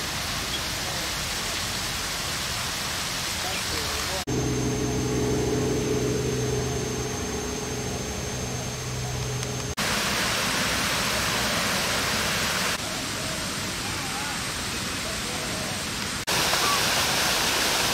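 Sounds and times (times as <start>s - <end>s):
low hum: 4.2s - 11.8s
faint high whine: 4.3s - 12.3s.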